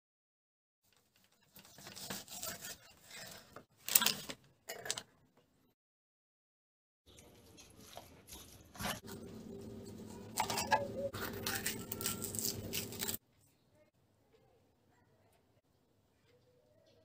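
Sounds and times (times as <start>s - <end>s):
low steady hum: 9.0s - 13.2s.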